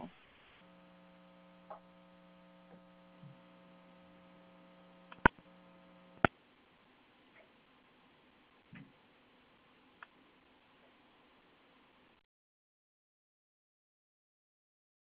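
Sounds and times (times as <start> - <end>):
electrical hum: 0.0 - 10.6
sharp clicks: 5.0 - 5.5.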